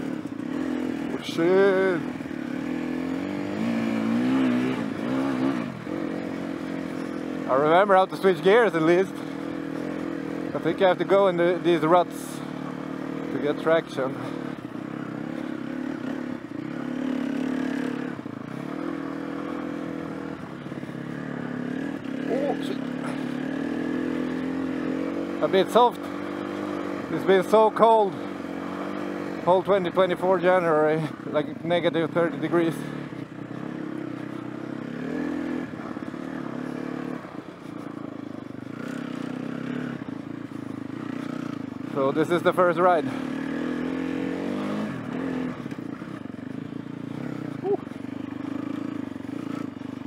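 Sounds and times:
motorcycle engine running: 0.0 - 50.0.

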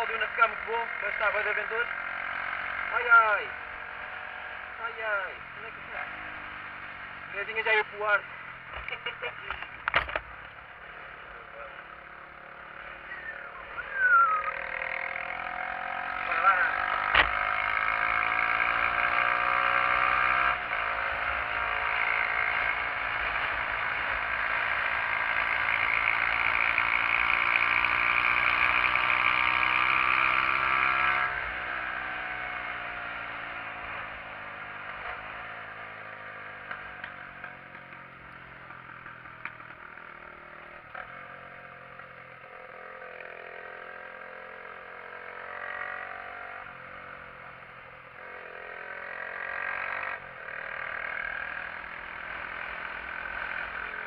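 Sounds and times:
motorcycle engine accelerating: 0.0 - 54.0
motorcycle gear shift: 8.7 - 10.3.

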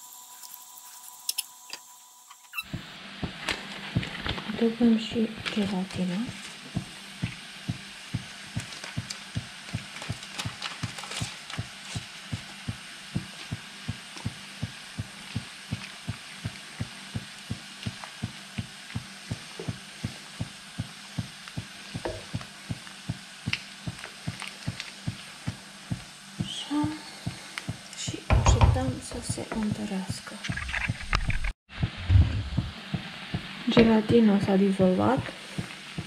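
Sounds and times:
light sizzling: 0.0 - 31.5
low thudding: 31.7 - 34.0.

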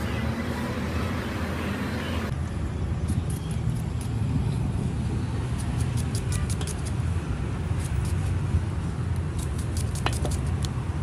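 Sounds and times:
road traffic rumble: 0.0 - 11.0
knife slicing onion: 5.4 - 7.0, 9.2 - 10.7.

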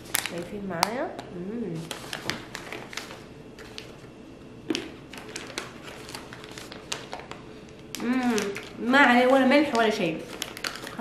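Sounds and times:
foil snack pouch crinkling: 0.0 - 0.6, 4.8 - 11.0.

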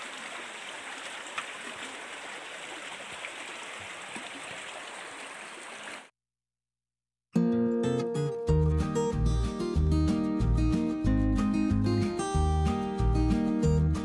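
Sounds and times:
stream running over stones: 0.0 - 6.1.

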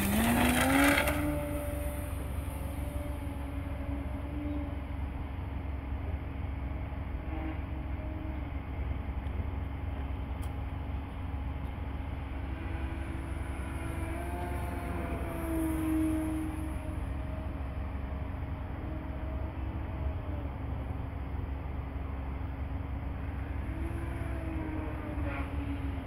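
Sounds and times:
model plane motor whining: 0.0 - 4.8, 12.3 - 17.6.

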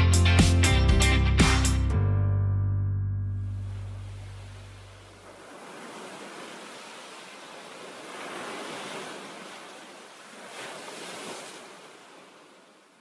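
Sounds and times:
surf washing in: 3.6 - 13.0.

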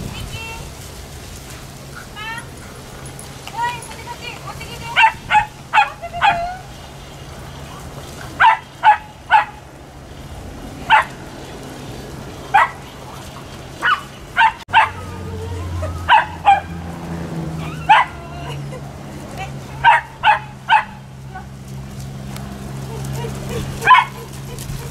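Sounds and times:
dog yipping: 4.9 - 6.6, 8.4 - 9.6, 10.9 - 11.1, 12.5 - 12.8, 13.8 - 16.8, 17.6 - 18.6, 19.8 - 21.5, 22.9 - 24.9.

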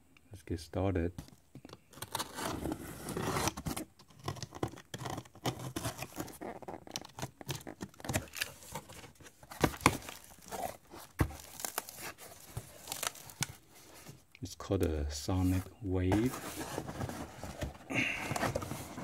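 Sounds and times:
cardboard flaps rustling: 5.8 - 14.2, 15.4 - 19.0.

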